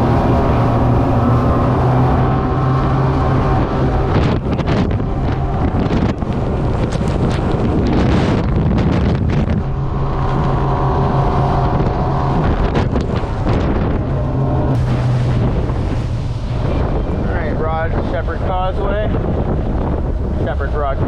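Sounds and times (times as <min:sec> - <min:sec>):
outboard motor running hard: 0:00.0 - 0:21.0
wind buffeting microphone: 0:00.0 - 0:21.0.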